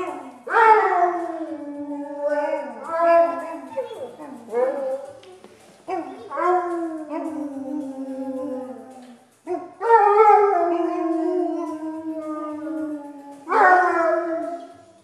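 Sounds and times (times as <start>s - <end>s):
dog howling: 0.0s - 5.3s, 5.9s - 14.9s.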